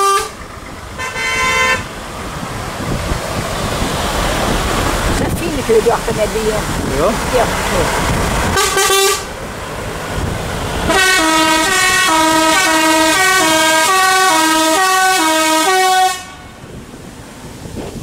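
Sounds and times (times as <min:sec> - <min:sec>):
musical air horn playing tune: 0:00.0 - 0:00.4, 0:01.0 - 0:01.9, 0:08.6 - 0:09.3, 0:10.9 - 0:16.6.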